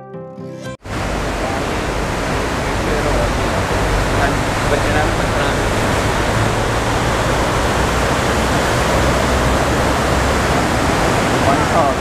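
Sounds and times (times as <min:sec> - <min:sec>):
river rushing over rocks: 0:00.8 - 0:12.0.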